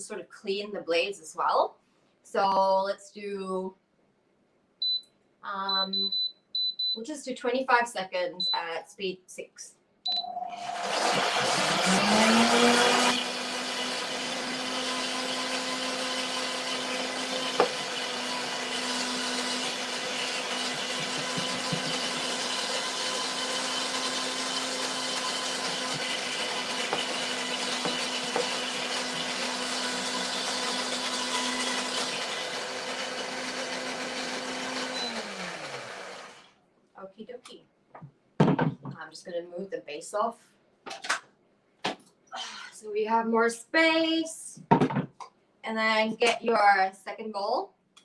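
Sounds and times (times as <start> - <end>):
blender motor running: 10.4 - 36.5
knock in blender: 20.8 - 22.3, 38.4 - 39.0.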